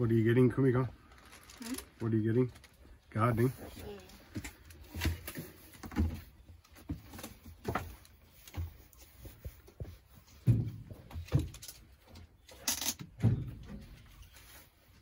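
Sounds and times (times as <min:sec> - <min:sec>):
soft knocks and rustles: 0:04.3 - 0:12.4.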